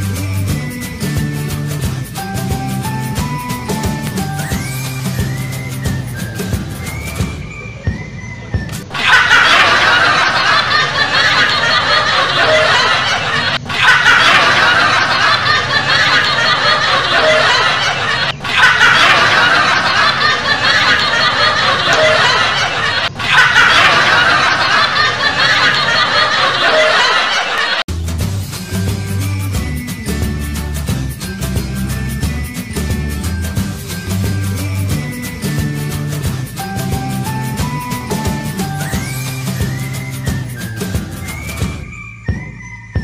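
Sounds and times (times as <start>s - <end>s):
group laughing hard: 8.9s - 27.9s.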